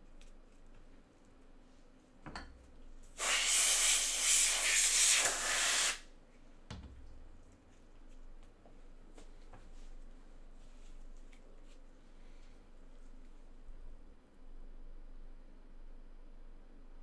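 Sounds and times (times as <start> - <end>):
loud steady hiss: 3.1 - 6.1
dull thump: 6.7 - 7.2.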